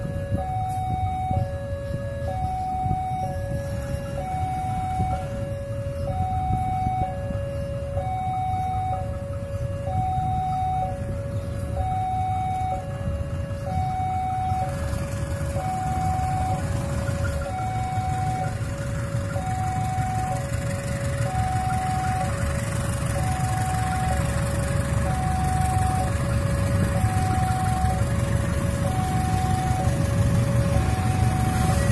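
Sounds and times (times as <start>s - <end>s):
low noisy rumble: 0.0s - 31.9s
level crossing alarm two tones: 0.4s - 7.3s, 7.9s - 11.0s, 15.6s - 20.5s.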